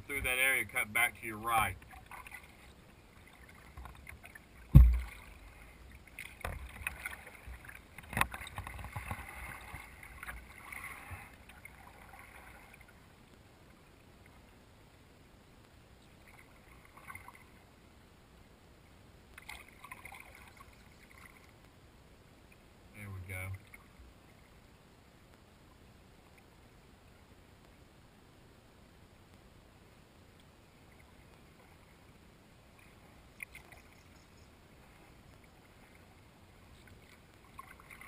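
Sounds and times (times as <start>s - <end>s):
paddle splashing water: 0.1s - 13.1s, 16.2s - 17.6s, 19.4s - 21.6s, 32.7s - 38.0s
thump on kayak: 4.7s - 5.2s.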